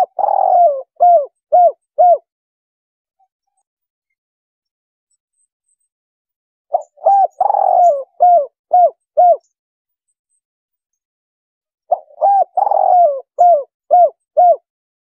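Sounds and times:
dove cooing: 0:00.0 - 0:02.3, 0:06.7 - 0:09.5, 0:11.9 - 0:14.7.

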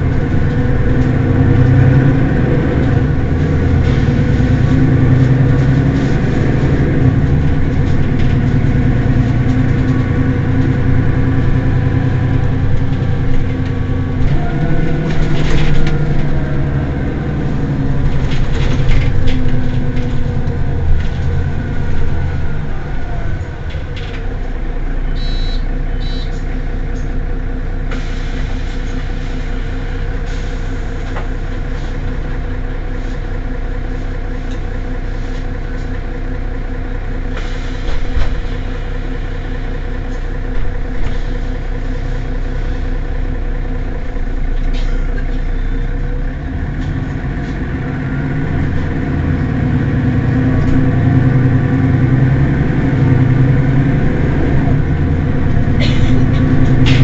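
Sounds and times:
bus engine idling: 0:00.0 - 0:57.0
short high beeps: 0:25.2 - 0:26.4.

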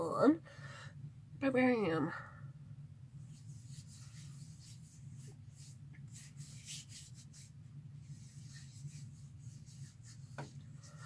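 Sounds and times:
steady low hum: 0:00.0 - 0:11.0
fingertips rubbing skin: 0:03.2 - 0:11.0.

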